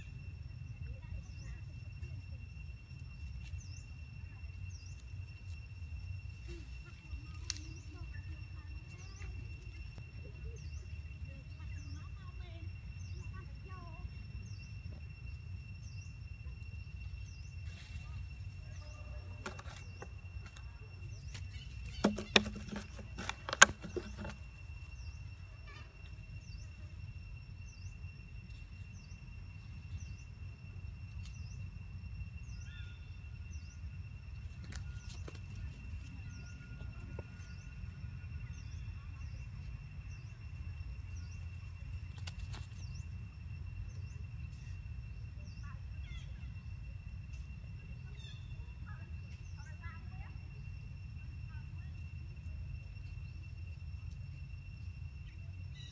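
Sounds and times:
low wind rumble: 0:00.0 - 0:22.0, 0:24.4 - 0:42.2
insect drone: 0:00.0 - 0:55.9.

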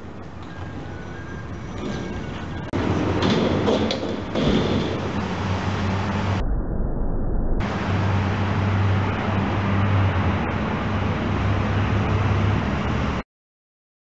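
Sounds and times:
low outdoor rumble: 0:00.0 - 0:13.2
low hum: 0:04.0 - 0:12.9.

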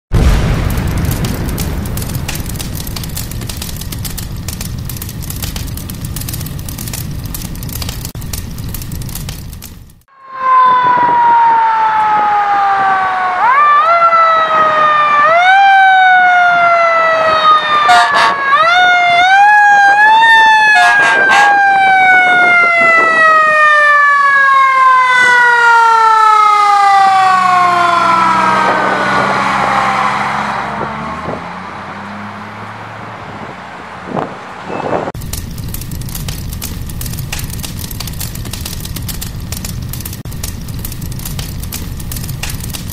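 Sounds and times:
truck engine rumble: 0:00.1 - 0:10.1, 0:25.7 - 0:42.9
short sharp siren blasts: 0:10.1 - 0:31.4
mechanical siren wailing: 0:10.1 - 0:31.5.

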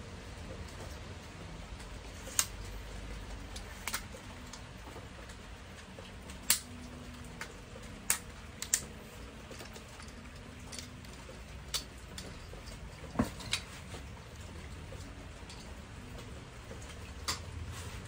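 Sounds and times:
sharp clicks and ticks: 0:01.7 - 0:13.6.

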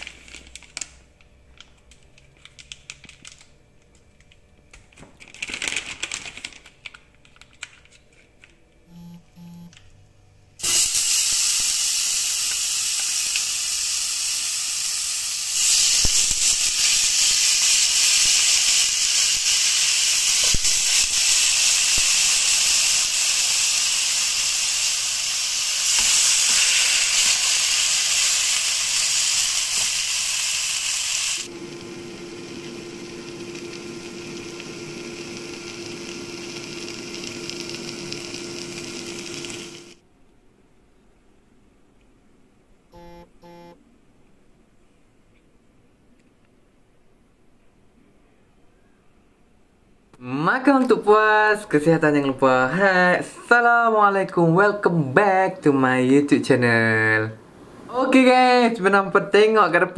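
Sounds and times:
plastic bag crinkling: 0:00.0 - 0:08.5
short beeps: 0:08.9 - 0:09.7, 0:43.0 - 0:43.8
meat sizzling in a pan: 0:10.6 - 0:40.0.

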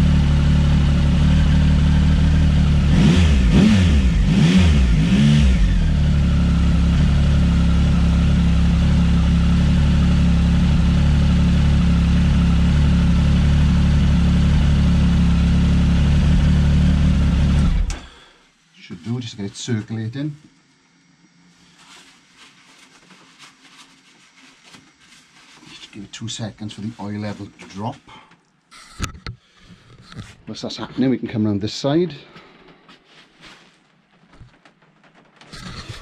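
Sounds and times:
motorcycle engine idling and revving: 0:00.0 - 0:18.1.

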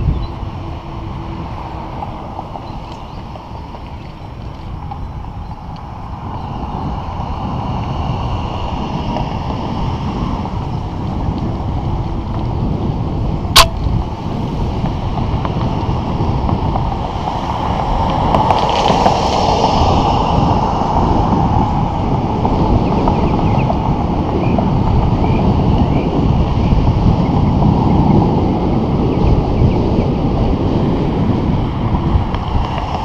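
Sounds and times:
wind buffeting microphone: 0:00.0 - 0:33.0
sharp knock: 0:13.6 - 0:13.9.

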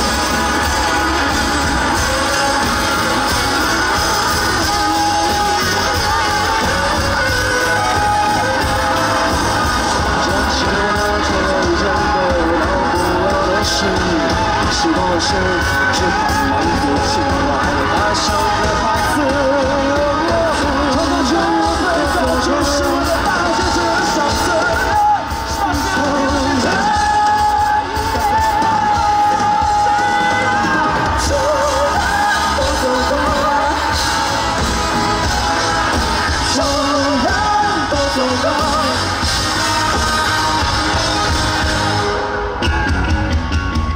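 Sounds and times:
person singing with vibrato: 0:00.0 - 0:42.8
band accompaniment: 0:00.0 - 0:43.9.

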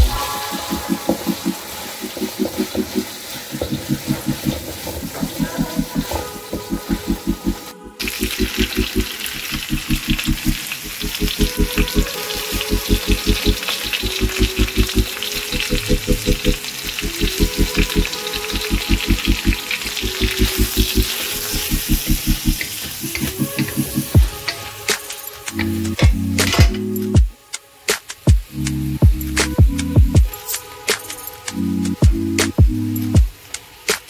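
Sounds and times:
background music with quick beat: 0:00.0 - 0:09.1, 0:22.0 - 0:34.0
food sizzling in hot oil: 0:00.0 - 0:34.0.

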